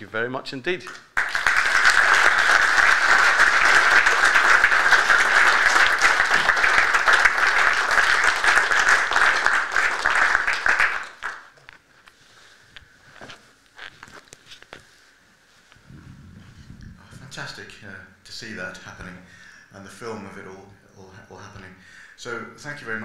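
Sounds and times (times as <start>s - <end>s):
audience applauding: 0.9s - 11.6s.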